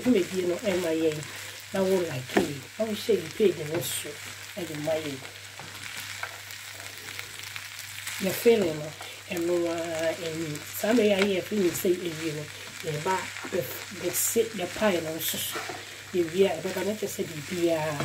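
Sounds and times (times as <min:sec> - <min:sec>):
spatula stirring food: 0:00.0 - 0:02.7, 0:05.2 - 0:18.0
food sizzling in a frying pan: 0:00.0 - 0:18.0.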